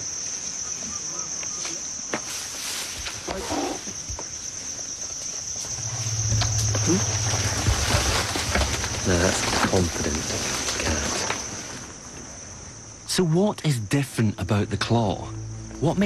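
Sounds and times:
insects droning: 0.0s - 16.0s
low rumble: 5.7s - 10.7s, 14.6s - 16.0s.

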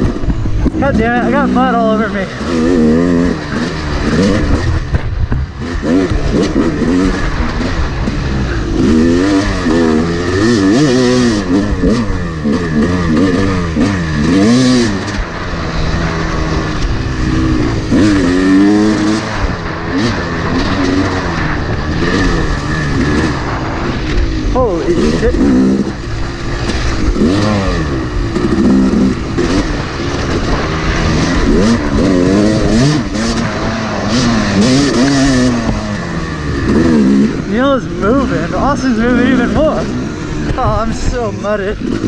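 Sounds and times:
dirt bike engine revving: 0.0s - 42.0s.

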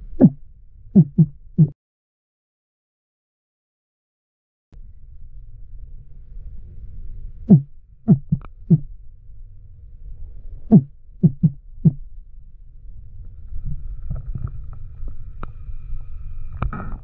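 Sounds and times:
underwater low rumble: 0.0s - 1.7s, 4.8s - 17.0s
short dull thumps: 0.1s - 0.4s, 1.0s - 1.8s, 7.5s - 8.9s, 10.7s - 12.0s.

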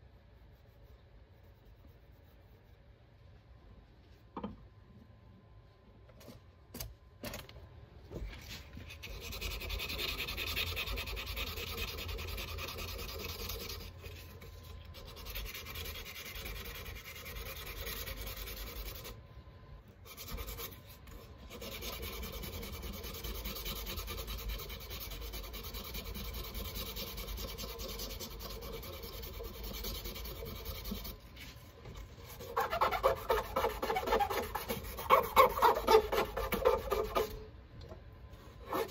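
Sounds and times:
rubbing against spinning lathe piece: 32.2s - 37.4s.

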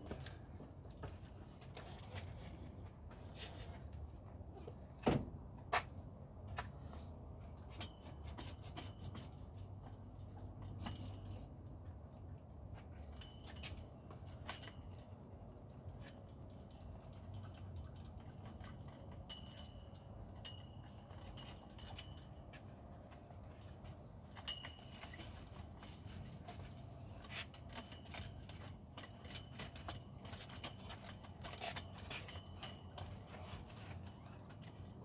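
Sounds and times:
tool clicks and metallic clinks: 7.6s - 25.8s.

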